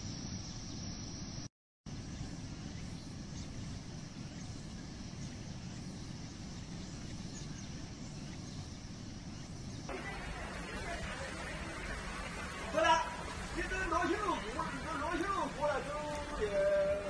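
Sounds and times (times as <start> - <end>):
floodwater rushing: 9.9 - 17.0.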